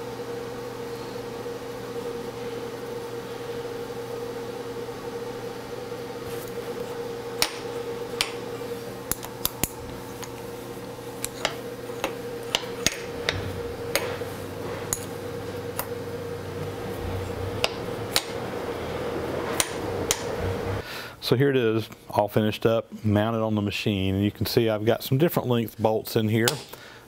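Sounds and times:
lower hum: 0.0s - 21.0s
machine hum: 0.0s - 21.4s.

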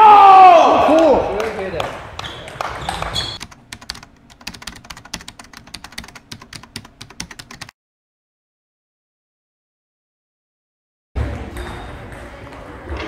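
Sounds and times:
shoe squeak: 2.2s - 3.4s
keyboard typing clicks: 3.0s - 7.7s.

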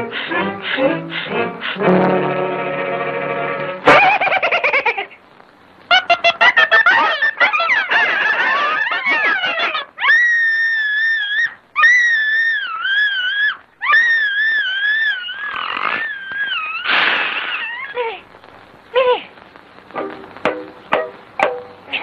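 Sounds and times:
cartoon chickens squawking: 5.9s - 18.0s
cartoon mouse screaming: 10.0s - 18.0s
rough noisy burst: 15.2s - 22.0s.

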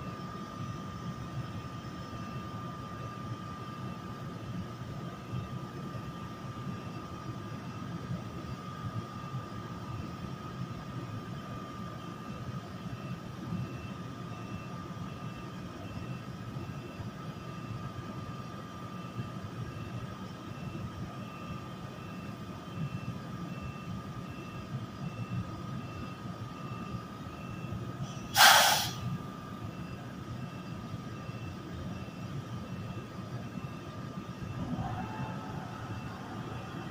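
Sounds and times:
electric locomotive whine and rumble: 0.0s - 36.9s
air hissing burst: 28.3s - 29.1s.

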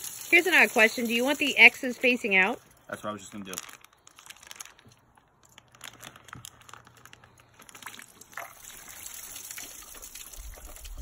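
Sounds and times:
plastic crinkling: 0.0s - 10.9s
water trickling and gurgling in a pot: 7.7s - 11.0s.

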